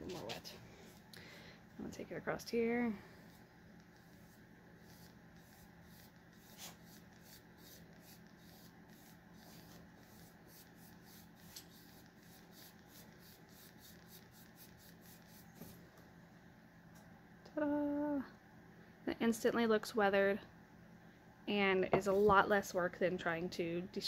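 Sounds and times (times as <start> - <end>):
brush swishing on wood: 3.1 - 15.8.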